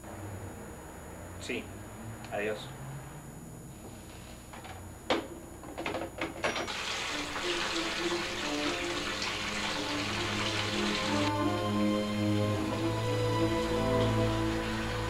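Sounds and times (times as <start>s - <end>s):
tap water running into drain: 6.5s - 11.7s, 13.7s - 15.0s
music with held notes: 7.1s - 15.0s.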